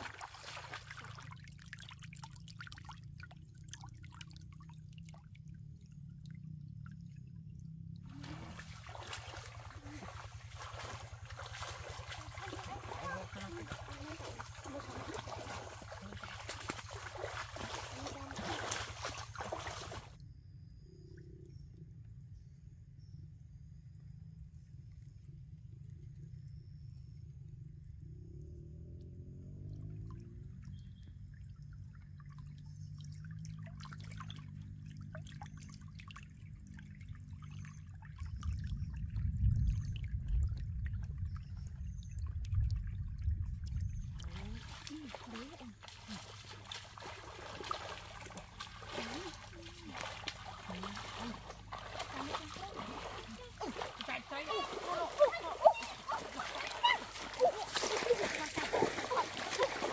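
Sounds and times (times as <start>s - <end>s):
fish splashing in water: 0.0s - 5.5s, 8.1s - 20.2s, 44.1s - 59.9s.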